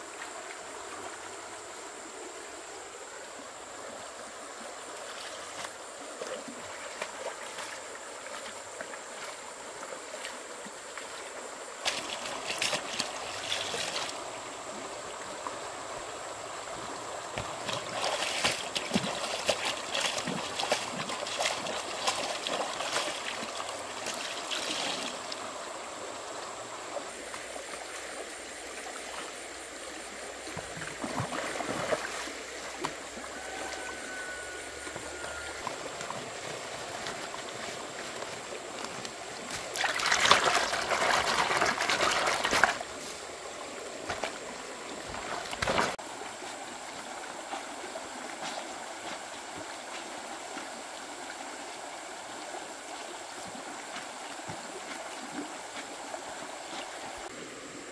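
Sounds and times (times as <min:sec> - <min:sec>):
water running and trickling: 0:06.5 - 0:57.4
splashing from hand washing clothes: 0:11.8 - 0:14.2, 0:17.4 - 0:25.2, 0:30.6 - 0:33.0, 0:36.0 - 0:42.9, 0:45.1 - 0:46.0.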